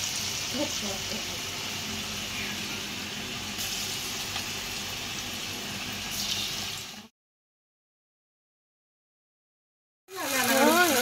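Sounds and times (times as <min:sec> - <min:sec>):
food sizzling in hot oil: 0:00.0 - 0:07.1, 0:10.1 - 0:11.0.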